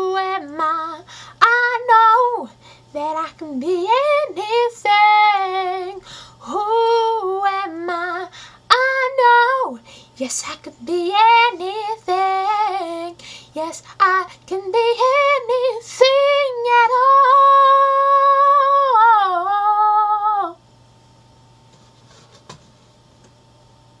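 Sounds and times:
woman singing: 0.0s - 20.6s.

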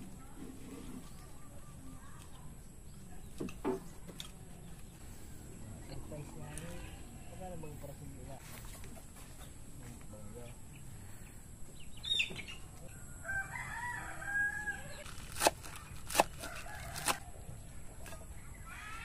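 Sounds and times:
rooster crowing: 12.9s - 15.0s, 16.4s - 17.4s, 18.5s - 19.0s.

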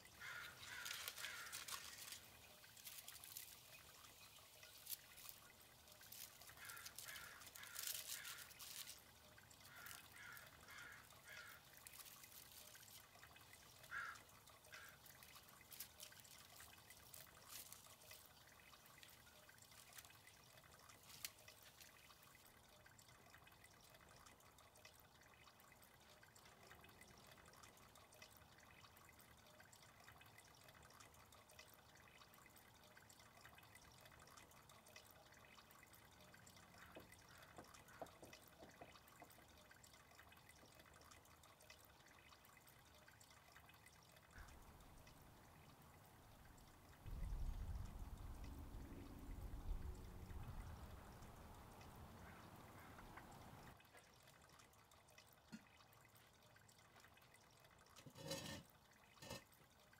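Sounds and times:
faint steady hiss: 0.0s - 38.0s
water trickling and dripping: 0.0s - 59.9s.

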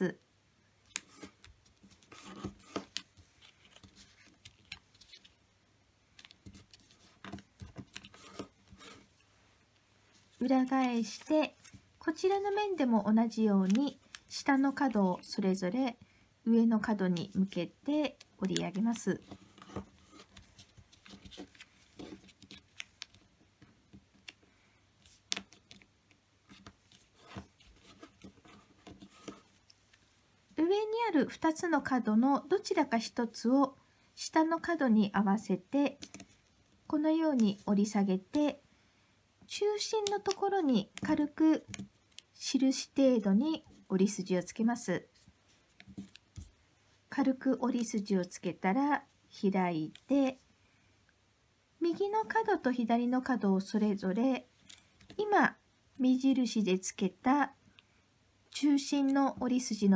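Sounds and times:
paper being folded and creased: 0.9s - 5.4s, 6.2s - 9.1s.

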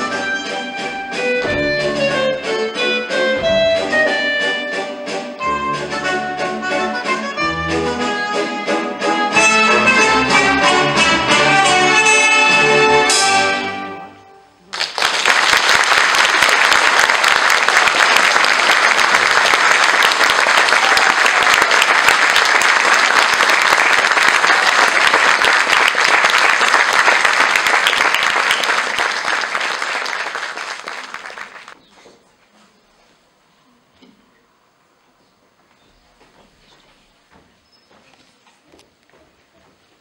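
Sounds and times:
audience applauding: 14.7s - 31.8s.

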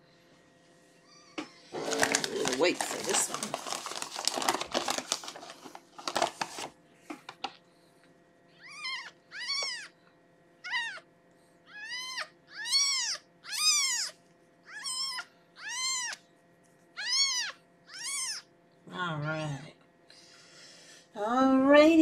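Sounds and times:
kitten mewing: 8.6s - 10.0s, 10.6s - 11.1s, 11.7s - 16.2s, 17.0s - 18.5s.

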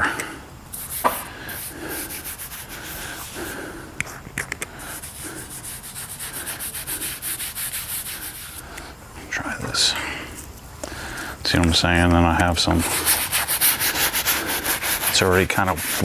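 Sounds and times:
sponge rubbing leather: 0.8s - 3.6s, 4.9s - 8.6s, 12.5s - 16.0s.

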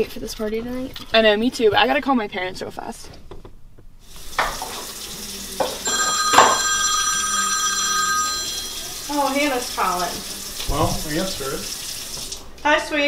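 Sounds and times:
tap running into sink: 4.3s - 6.6s, 10.6s - 12.4s
phone ringtone tones: 5.8s - 9.7s.

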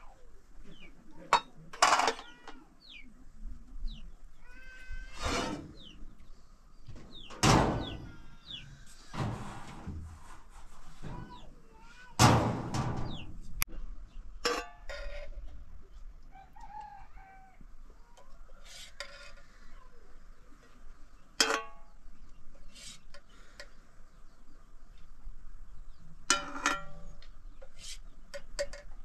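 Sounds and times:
farm animals calling: 0.0s - 9.7s.

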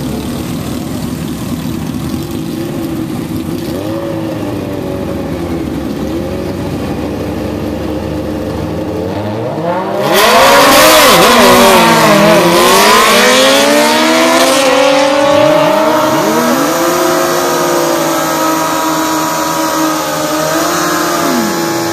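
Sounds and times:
engines running steadily: 0.0s - 21.9s
motorcycle accelerating at full throttle: 0.0s - 21.9s.

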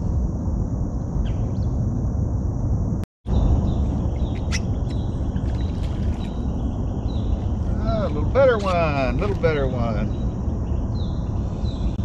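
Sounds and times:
wind buffeting microphone: 0.0s - 12.0s
faint bird chirps: 3.3s - 8.2s.

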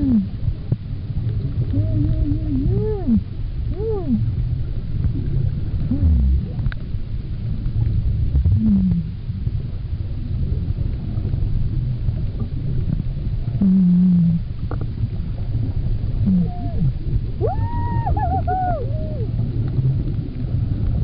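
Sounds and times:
low underwater rumble: 0.0s - 21.0s
humpback whale song: 1.5s - 4.5s, 5.2s - 6.7s, 13.5s - 14.6s, 16.1s - 20.3s.

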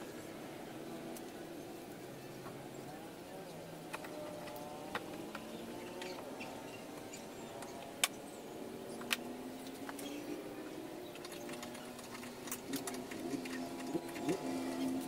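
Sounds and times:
faint wavering tones: 5.4s - 15.0s.

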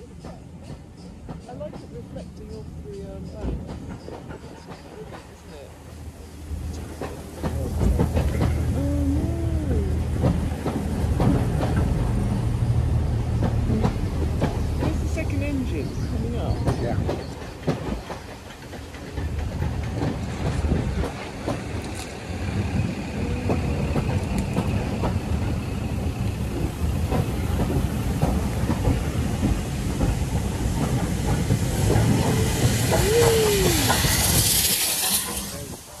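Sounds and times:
train coaches rumbling: 0.0s - 36.0s
wheels clacking over rail joints: 0.0s - 36.0s
steam hiss: 21.4s - 36.0s.

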